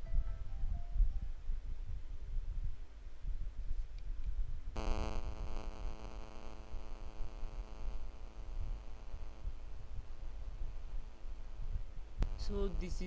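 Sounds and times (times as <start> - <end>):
microphone rumble: 4.7 - 13.0
electrical buzz: 4.8 - 13.0.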